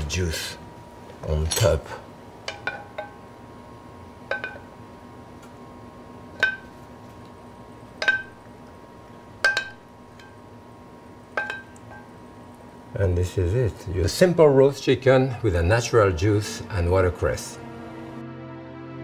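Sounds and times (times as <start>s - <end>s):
metal spoon clinking on cookware: 2.5s - 3.2s, 4.3s - 4.7s, 8.0s - 8.4s, 9.4s - 10.4s, 11.4s - 12.1s.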